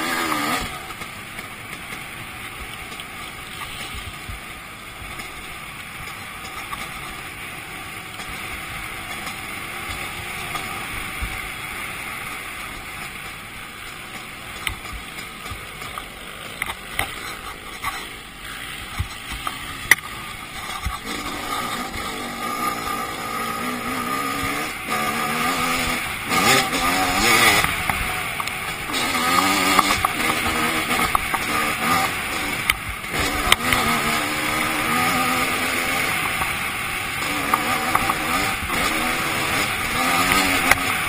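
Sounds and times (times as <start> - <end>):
dirt bike engine: 0.0 - 41.0
wind noise: 3.4 - 5.2.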